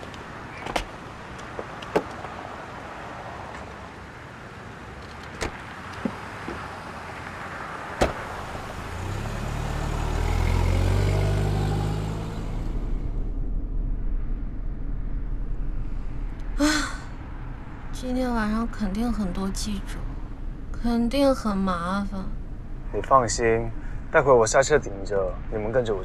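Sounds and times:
van engine pulling away: 5.5 - 16.6.

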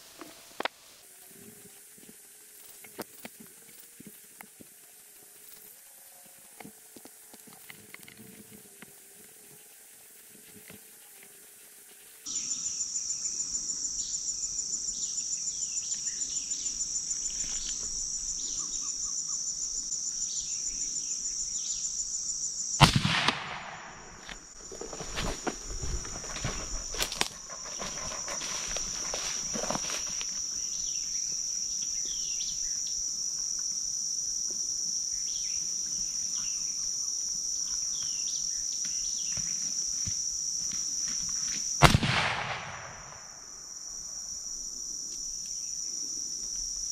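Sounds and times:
insects chirping: 0.0 - 46.9
rifle shot: 22.8 - 24.3, 41.8 - 43.2
cracks and thumps: 22.8 - 30.3.

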